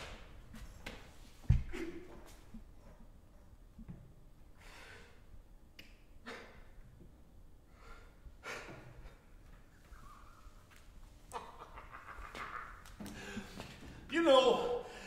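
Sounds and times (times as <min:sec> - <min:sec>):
person gasping breathily: 0:13.0 - 0:13.9.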